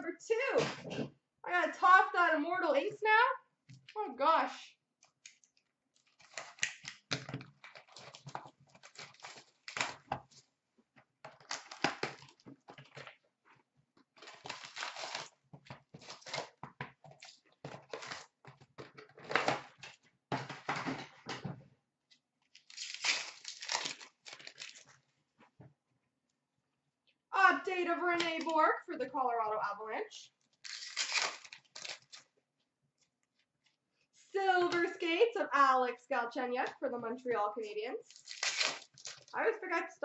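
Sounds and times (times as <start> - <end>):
foil packs crinkling: 6.0 - 10.4, 14.2 - 20.0, 22.6 - 25.0, 30.6 - 32.3, 38.1 - 39.3
cardboard box tearing: 14.2 - 15.4, 16.0 - 16.6, 30.7 - 32.2.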